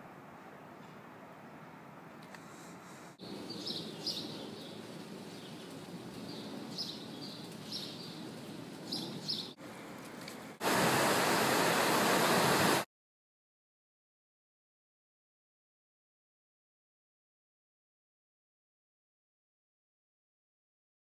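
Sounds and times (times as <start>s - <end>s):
background hiss: 0.0s - 12.8s
small birds chirping: 3.0s - 9.6s
waves breaking on beach: 10.6s - 12.8s.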